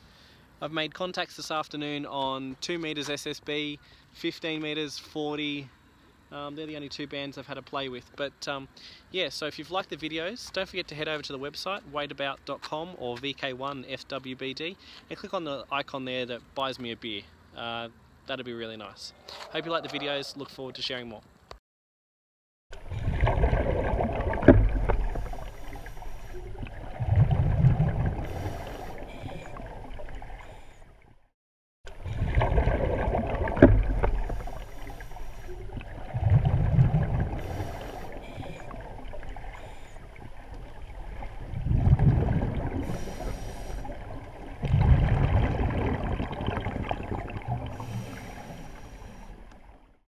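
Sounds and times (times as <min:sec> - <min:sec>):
rushing water: 0:22.8 - 0:31.1, 0:31.9 - 0:50.0.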